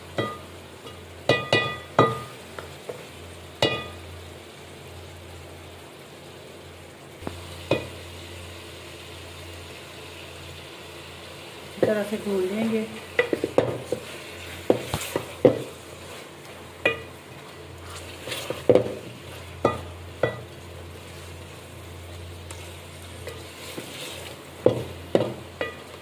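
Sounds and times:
meat sizzling in a pot: 0.0s - 26.0s
ladle scraping a pot: 17.8s - 20.4s, 22.5s - 24.8s.

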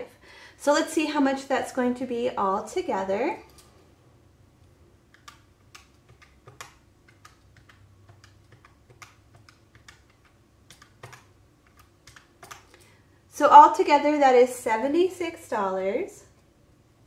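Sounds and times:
calculator keys clicking: 5.1s - 12.9s.

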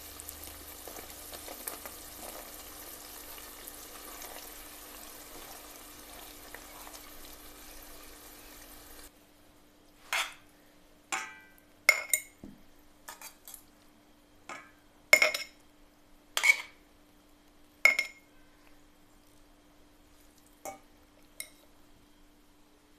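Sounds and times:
peppers sizzling in a pot: 0.0s - 9.1s, 13.0s - 15.8s, 20.2s - 21.7s
metal utensil clinking on pot: 11.1s - 12.3s, 17.9s - 18.2s.

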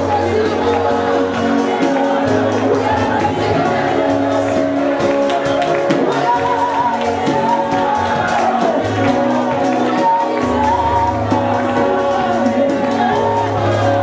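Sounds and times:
live band playing: 0.0s - 14.0s
man singing into microphone: 0.0s - 14.0s.

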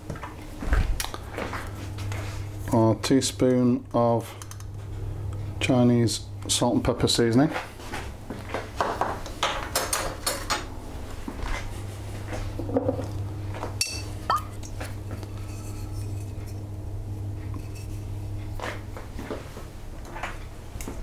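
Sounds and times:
steady low hum: 0.0s - 21.0s
kitchen utensils clinking: 13.8s - 14.8s.

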